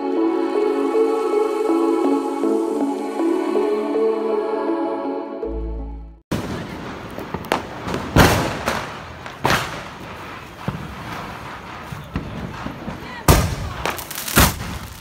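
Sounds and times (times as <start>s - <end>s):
firework explosions: 6.3s - 15.0s
faint firecracker pops: 7.1s - 11.2s.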